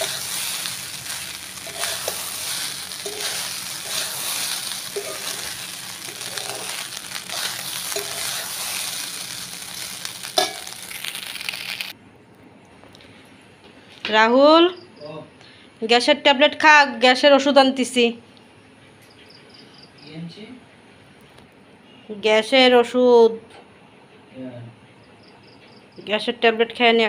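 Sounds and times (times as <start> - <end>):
spatula scraping a pan: 0.0 - 11.0
rice sizzling in a pan: 0.0 - 12.0.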